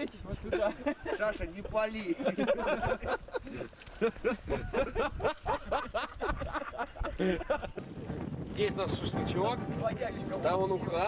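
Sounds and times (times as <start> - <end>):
people talking: 0.0 - 3.2, 8.5 - 11.0
people laughing: 0.3 - 7.9.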